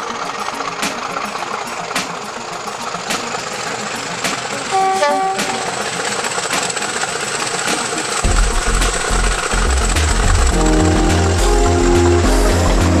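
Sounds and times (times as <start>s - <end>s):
diesel locomotive engine running: 0.0s - 13.0s
train horn: 4.7s - 5.8s.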